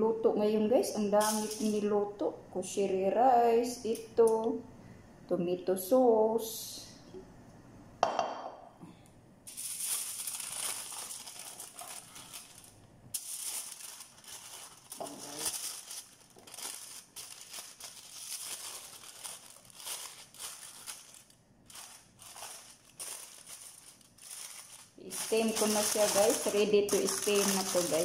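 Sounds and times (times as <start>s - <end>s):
aluminium foil crinkling: 1.2s - 1.8s, 9.5s - 28.0s.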